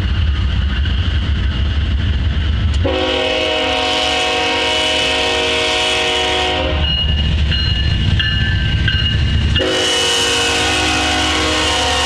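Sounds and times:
locomotive rumbling past: 0.0s - 12.0s
locomotive air horn: 2.8s - 6.9s, 9.6s - 12.0s.

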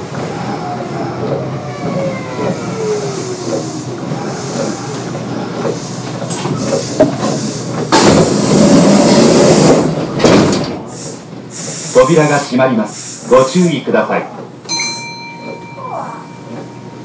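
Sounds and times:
train motor and gear whine: 0.0s - 17.0s
loud hiss of air: 10.8s - 13.3s.

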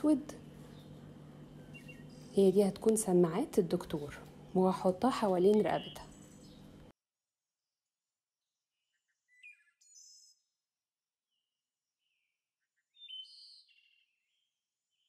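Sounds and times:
bird chirps and trills: 0.0s - 6.9s, 8.8s - 10.5s, 12.0s - 15.0s.

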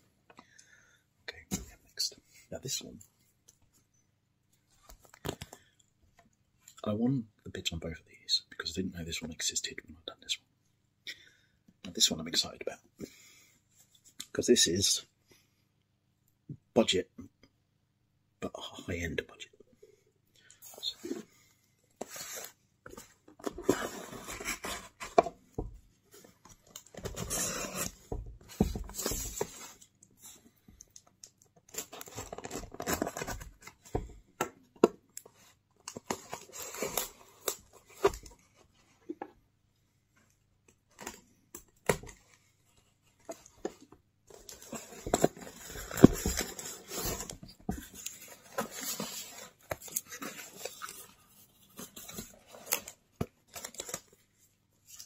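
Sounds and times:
cardboard being handled: 22.0s - 29.9s, 41.8s - 54.2s.

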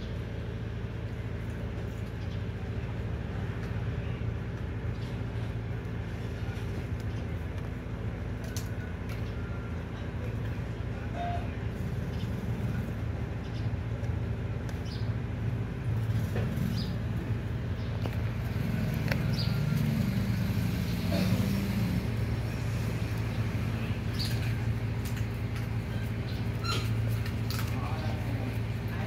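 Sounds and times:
low motor-like hum: 0.0s - 29.0s
puppies chewing: 24.2s - 29.0s.

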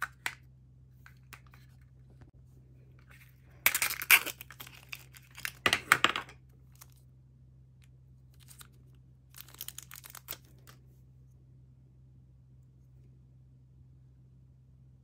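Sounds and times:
plastic wrapping crinkling: 3.6s - 5.6s, 8.4s - 10.8s.

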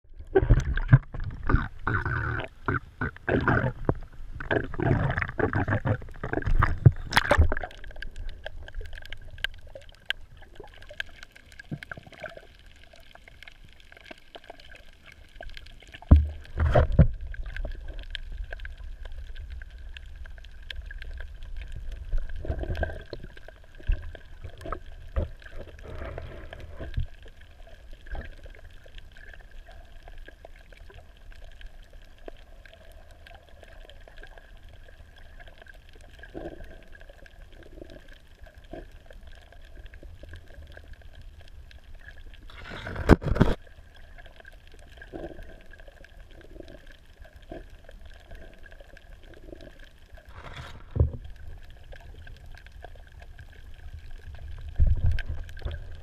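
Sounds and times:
muffled underwater sound: 0.0s - 56.0s
water splashing and gurgling: 0.0s - 56.0s.

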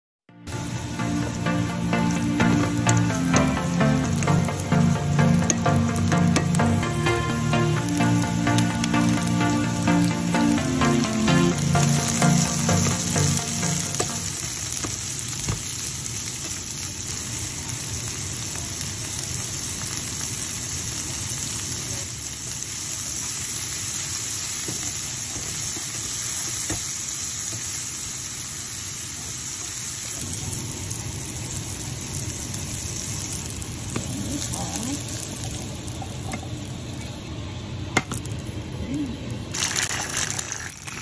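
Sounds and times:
background music: 0.3s - 14.4s
vegetables sizzling in oil: 0.5s - 41.0s.

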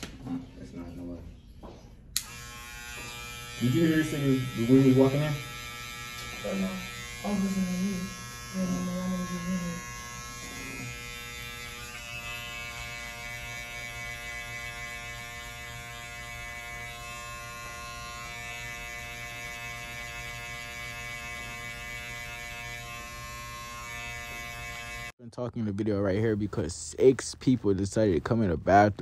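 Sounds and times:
electric hair clippers buzzing: 2.2s - 25.1s.

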